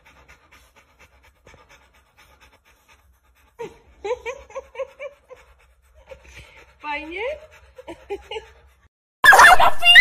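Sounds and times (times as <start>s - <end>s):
dog panting rapidly: 0.0s - 9.0s.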